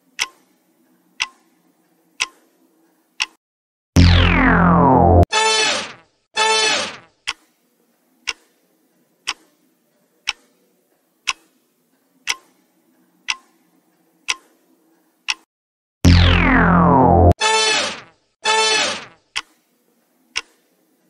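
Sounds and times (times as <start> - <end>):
timer ticking: 0.2 - 0.4, 1.2 - 1.4, 2.2 - 2.4, 3.2 - 3.4, 8.2 - 8.5, 9.2 - 9.4, 11.2 - 11.5, 12.2 - 12.6, 13.2 - 13.5, 14.3 - 14.5, 15.3 - 15.5, 19.4 - 19.6, 20.4 - 20.6
short electronic tone: 4.0 - 6.9, 16.1 - 19.1.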